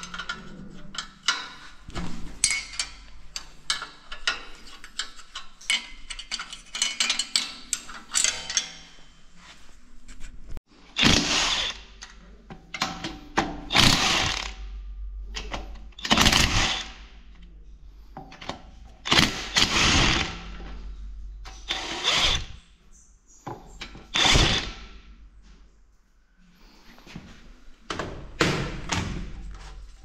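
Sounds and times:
power tool bursts: 0:11.0 - 0:11.8, 0:13.7 - 0:14.5, 0:19.1 - 0:20.4, 0:21.7 - 0:22.6, 0:24.1 - 0:24.9.

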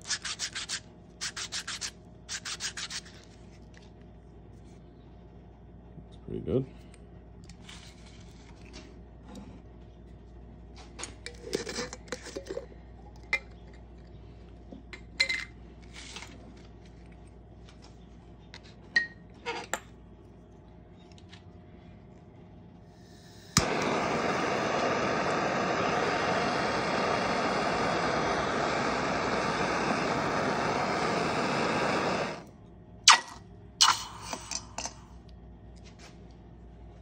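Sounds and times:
torch flame hissing: 0:23.0 - 0:32.5
gas torch lighting click: 0:23.2 - 0:32.5.

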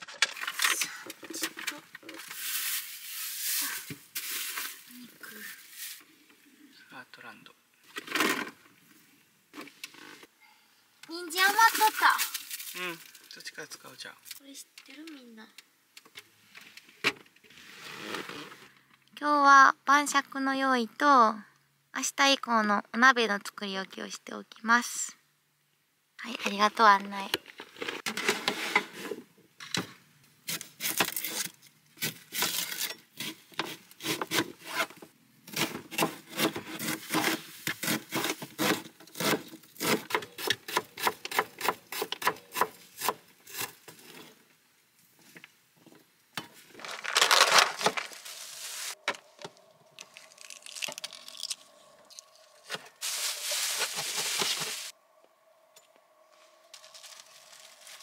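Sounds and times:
rustling and handling noise: 0:00.0 - 0:06.4, 0:43.8 - 0:55.0, 0:56.2 - 0:58.0.

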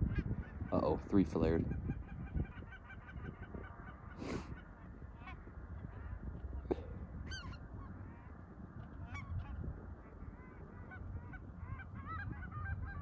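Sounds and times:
geese honking: 0:01.7 - 0:06.2, 0:07.3 - 0:13.0.

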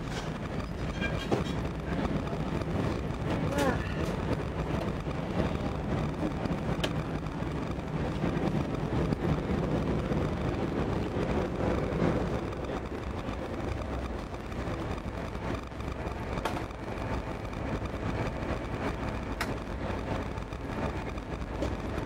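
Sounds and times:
railcar rumbling along track: 0:00.0 - 0:22.0
faint clicks: 0:19.3 - 0:19.7.

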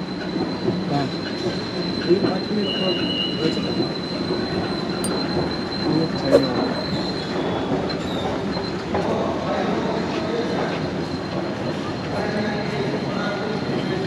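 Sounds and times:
lift machinery rumble and whine: 0:00.0 - 0:14.0.

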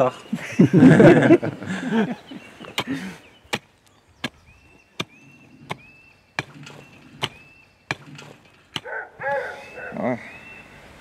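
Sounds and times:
mattock striking stony soil: 0:02.6 - 0:09.0.

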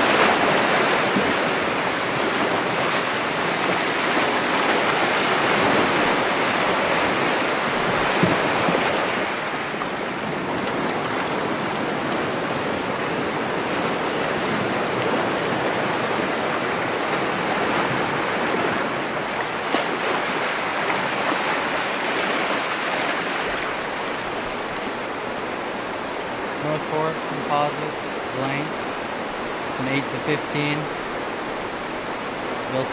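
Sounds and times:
river rapids rushing: 0:00.0 - 0:32.9.

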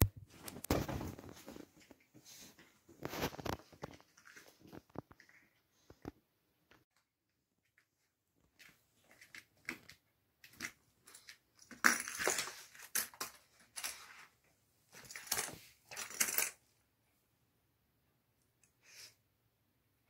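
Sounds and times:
plastic toy clattering on floor: 0:09.2 - 0:14.0, 0:15.0 - 0:16.6.

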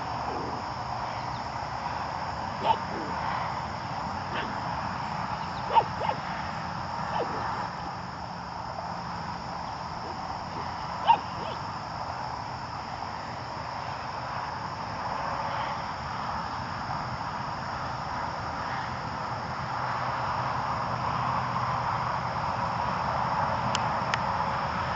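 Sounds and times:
dog bark: 0:02.6 - 0:03.2, 0:04.3 - 0:04.6, 0:05.6 - 0:06.3, 0:07.1 - 0:07.8, 0:10.0 - 0:11.6.

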